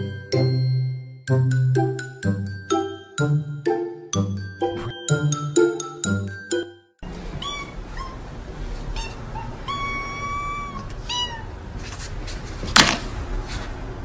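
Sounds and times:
kittens meowing: 7.4s - 8.3s, 8.9s - 11.6s.

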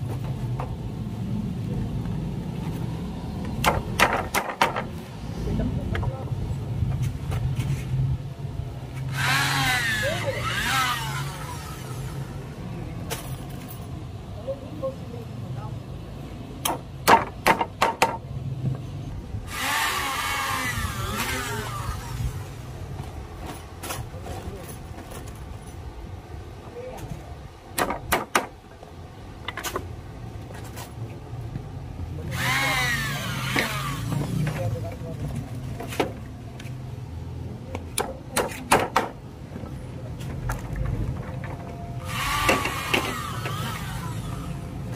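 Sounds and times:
electric drill boring into wood: 9.1s - 12.0s, 19.5s - 22.3s, 32.3s - 34.1s, 42.0s - 44.6s.

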